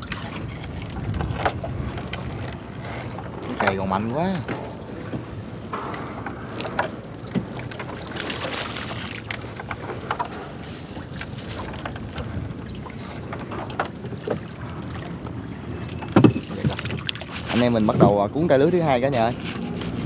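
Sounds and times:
boat motor running: 9.2 - 20.0.

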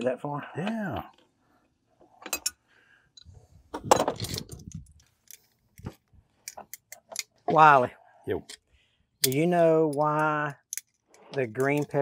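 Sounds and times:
metallic clinks of clamps and tools: 2.2 - 2.6, 3.2 - 5.5, 8.4 - 12.0.

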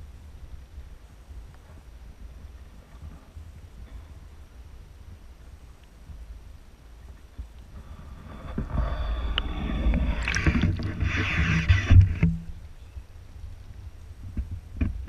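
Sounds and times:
muffled underwater rumble: 0.0 - 15.0
water sloshing and splashing: 7.8 - 12.6.

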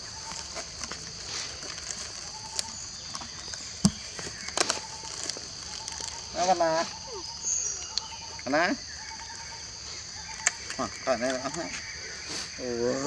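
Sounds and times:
plastic bag rustling: 0.0 - 6.9
high-pitched insect drone: 4.2 - 13.0.

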